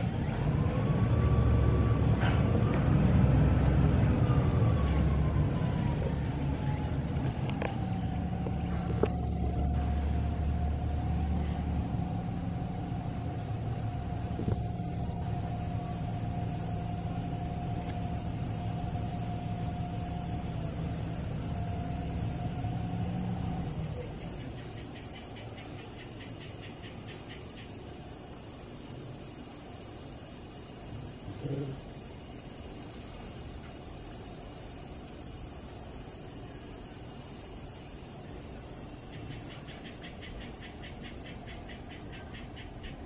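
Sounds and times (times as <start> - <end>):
motor rumble with whine: 0.0 - 24.8
insects trilling: 0.0 - 43.0.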